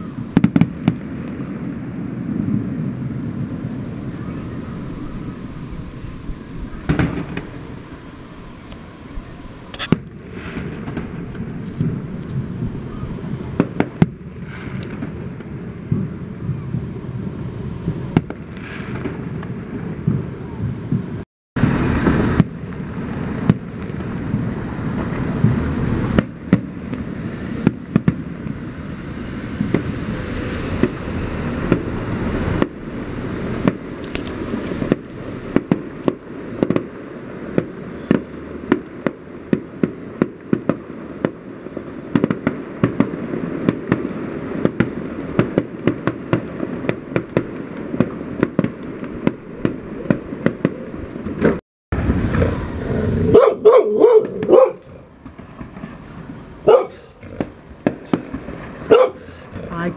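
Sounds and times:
fireworks bangs and crackles: 0.0s - 59.9s
rumbling firework bursts: 0.0s - 59.9s
dog barking: 53.3s - 54.9s, 56.6s - 57.1s, 58.9s - 59.4s.

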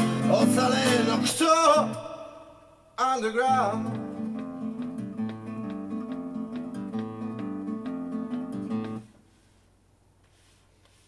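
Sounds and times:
acoustic guitar plucking: 0.0s - 2.2s, 3.0s - 9.2s
man singing: 0.0s - 4.5s.

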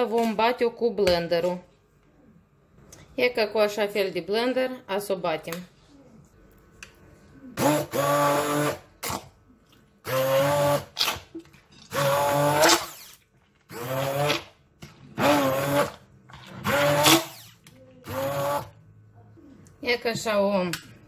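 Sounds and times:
immersion blender motor whirring: 7.6s - 9.2s, 10.0s - 11.0s, 11.9s - 14.6s, 15.2s - 18.8s.

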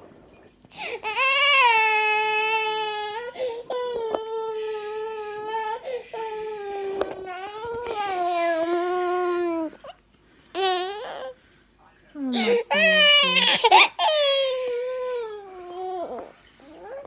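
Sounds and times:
toddler crying: 12.4s - 17.0s.

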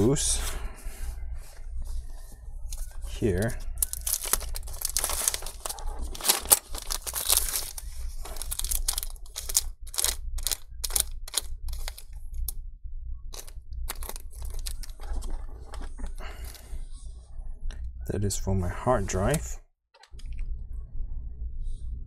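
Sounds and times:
crinkly rustling: 0.0s - 12.5s, 13.3s - 16.8s.

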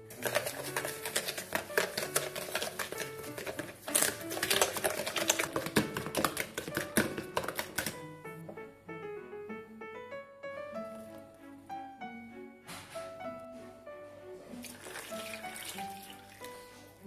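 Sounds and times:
whisk clicking and scraping bowl: 0.0s - 8.0s
soft background music: 0.0s - 17.0s.

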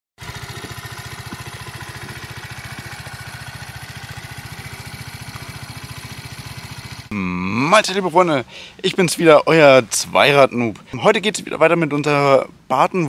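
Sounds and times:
moped engine idling: 0.2s - 7.8s.

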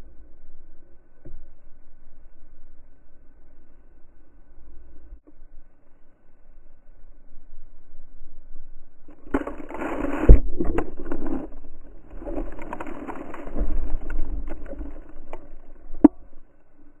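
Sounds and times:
fur and snow rubbing on camera: 9.3s - 15.9s.

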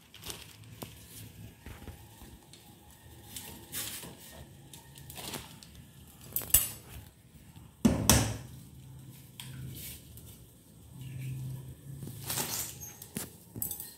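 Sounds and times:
plastic packet rustling: 0.0s - 7.1s, 12.0s - 13.9s.

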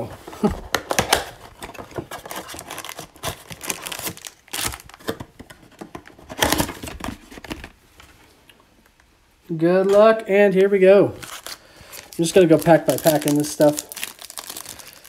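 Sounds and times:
packs tearing: 0.5s - 5.3s, 11.2s - 15.0s
foil packs crinkling: 0.8s - 7.6s, 11.2s - 15.0s.

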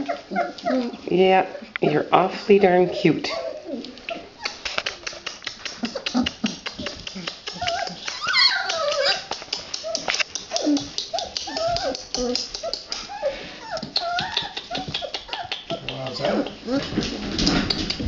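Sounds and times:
puppy whimpering and whining: 0.0s - 1.7s, 2.9s - 4.6s, 7.5s - 15.5s
soft clicks and rustling: 3.8s - 13.1s.

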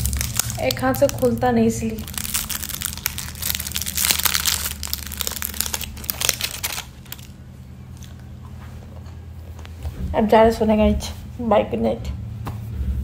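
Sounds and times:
wrapper crinkling: 0.0s - 8.3s.

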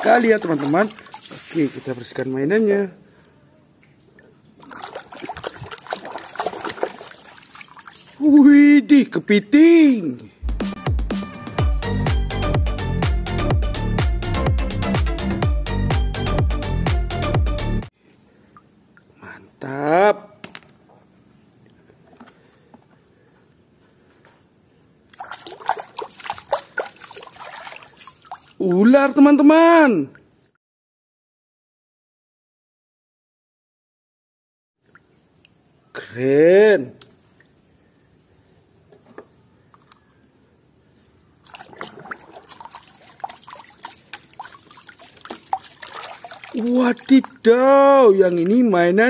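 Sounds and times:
water sloshing in a basin: 0.0s - 2.2s, 4.2s - 8.3s, 25.1s - 29.3s, 41.4s - 48.8s.

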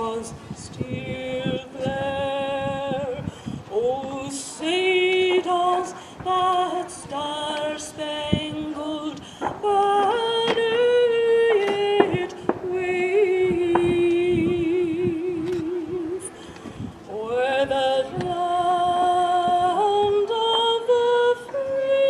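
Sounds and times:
person singing unaccompanied: 0.0s - 22.0s.

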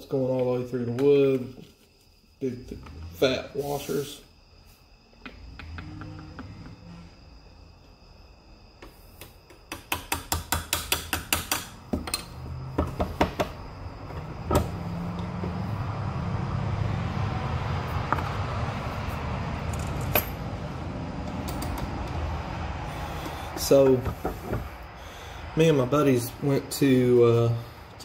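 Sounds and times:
steady low hum: 11.7s - 28.0s.

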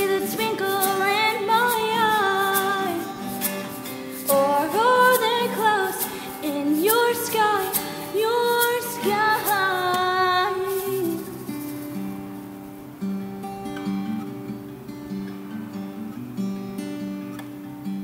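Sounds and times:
woman singing: 0.0s - 3.6s, 4.2s - 11.6s
acoustic guitar: 0.0s - 18.0s.

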